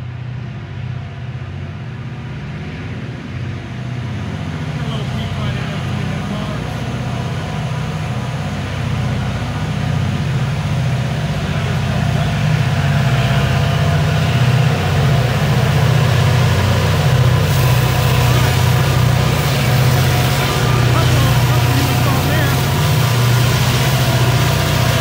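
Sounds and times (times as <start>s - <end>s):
diesel locomotive engine under load: 0.0s - 25.0s.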